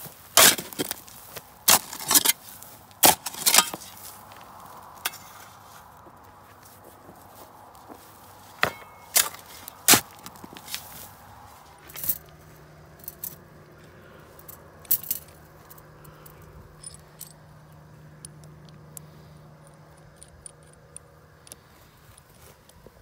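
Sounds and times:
small metallic clinks and taps: 14.4s - 22.8s.

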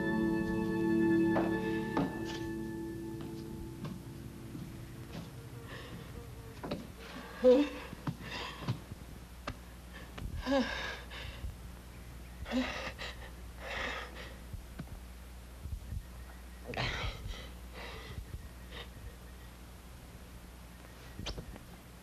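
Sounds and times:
woman breathing loudly: 5.6s - 6.3s.

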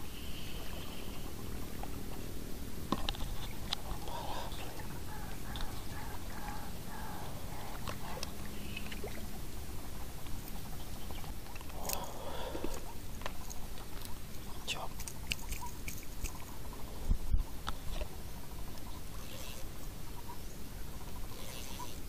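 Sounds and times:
light clicks and rustles: 2.9s - 4.9s.

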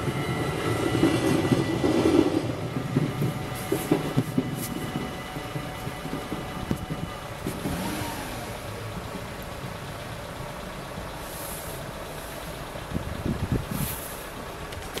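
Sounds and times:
trucks and cars idling: 0.0s - 15.0s
air brake hiss: 11.2s - 12.6s, 13.7s - 14.4s.

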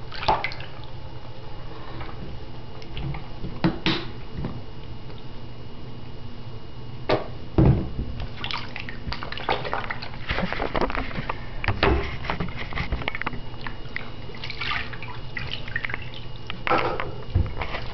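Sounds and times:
water splashing in a sink: 0.0s - 1.0s, 8.2s - 10.6s, 13.2s - 17.9s.

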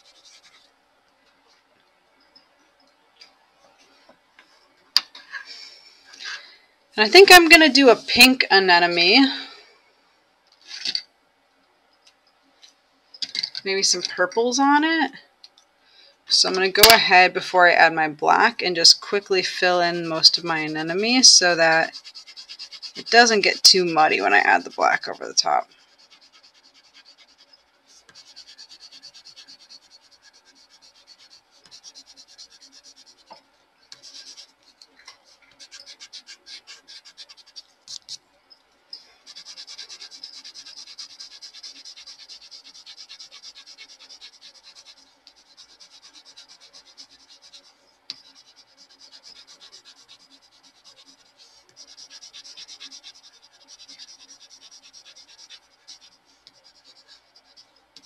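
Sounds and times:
pencil scratching on paper: 0.0s - 0.7s, 18.9s - 38.2s, 39.0s - 58.0s.

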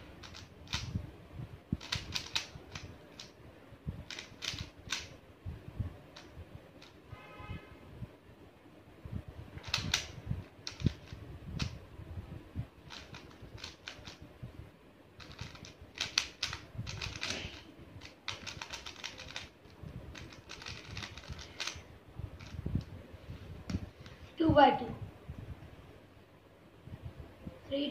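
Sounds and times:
puzzle cube clicking: 0.1s - 1.0s, 1.8s - 3.4s, 4.0s - 5.2s, 9.6s - 11.8s, 12.8s - 14.2s, 15.2s - 21.8s, 22.4s - 22.6s.

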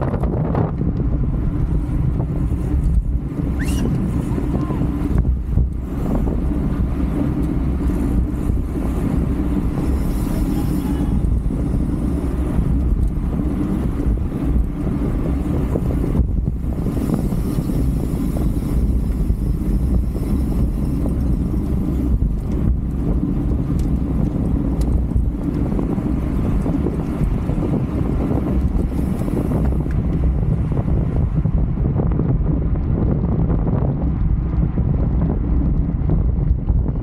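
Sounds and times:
wind rushing over microphone: 0.0s - 37.0s.

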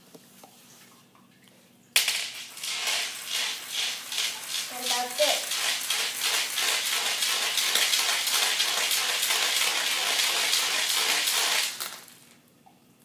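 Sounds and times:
marbles scraping on tile floor: 2.0s - 12.4s.

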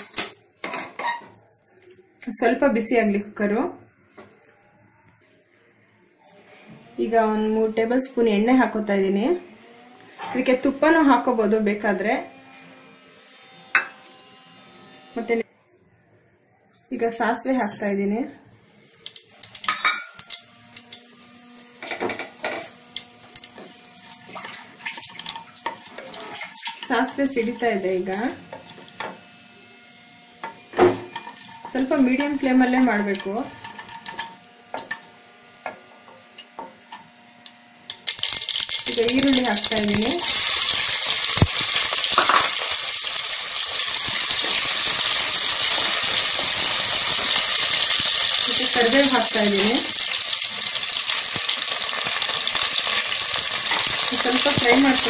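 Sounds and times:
mustard seeds crackling in oil: 19.0s - 21.8s, 22.6s - 29.0s, 31.1s - 35.6s, 36.3s - 55.0s
utensils clinking against pot: 19.4s - 20.4s, 30.4s - 35.1s.

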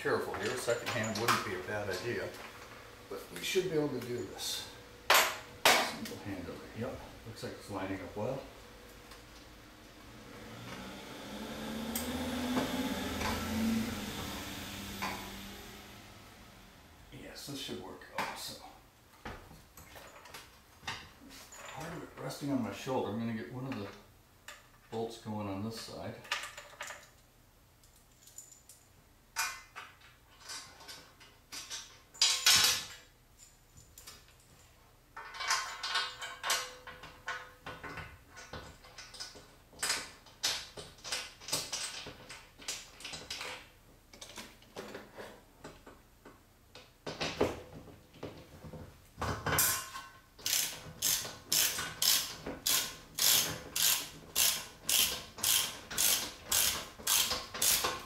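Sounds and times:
socket wrench ratcheting: 50.4s - 58.0s.

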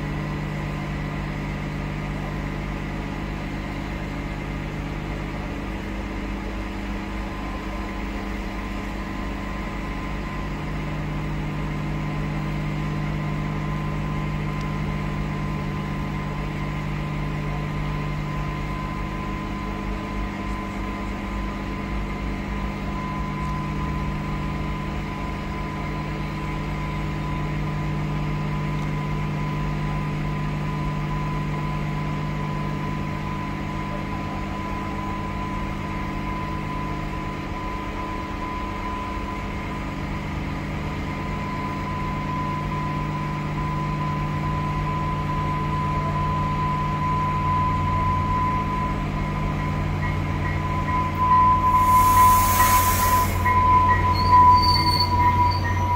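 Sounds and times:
constant high-pitched tone: 41.5s - 55.9s
buses idling: 48.9s - 55.9s
approaching commuter train: 49.1s - 55.9s.

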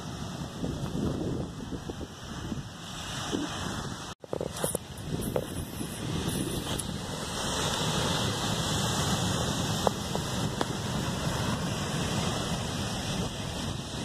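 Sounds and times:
surf breaking on beach: 0.0s - 14.0s
wind buffeting microphone: 0.0s - 14.0s.

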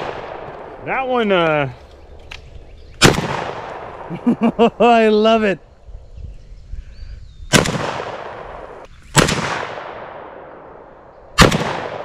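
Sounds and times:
rifle shots with echo: 0.0s - 0.8s, 3.0s - 4.2s, 7.5s - 12.0s.

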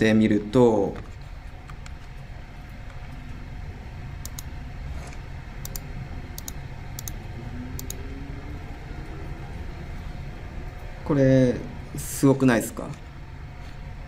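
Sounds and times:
low room hum: 0.0s - 14.0s
sharp computer mouse clicks: 4.2s - 4.5s, 5.6s - 7.2s.

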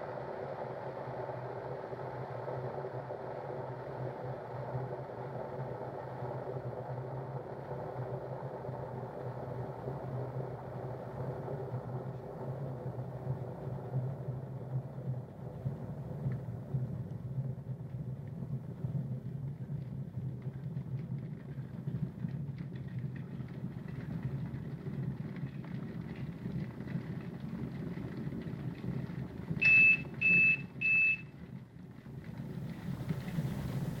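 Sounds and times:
kettle heating rumble: 0.0s - 34.0s
short beeps: 29.6s - 31.2s.

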